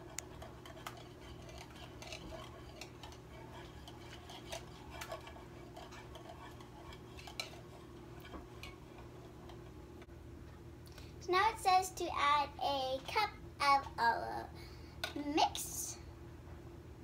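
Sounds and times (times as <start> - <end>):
whisk clinking against bowl: 0.1 - 8.8.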